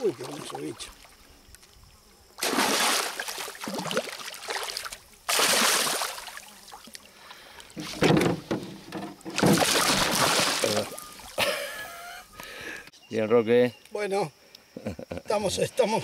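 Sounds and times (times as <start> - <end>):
fish splashing at water surface: 2.4 - 7.1, 9.3 - 11.4.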